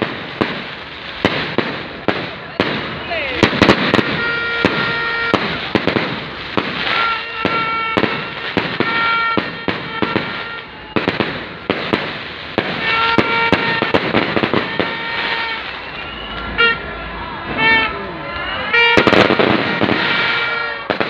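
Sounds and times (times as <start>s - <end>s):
fireworks bangs and crackling: 0.0s - 21.0s
horn tooting: 3.4s - 11.2s, 12.6s - 21.0s.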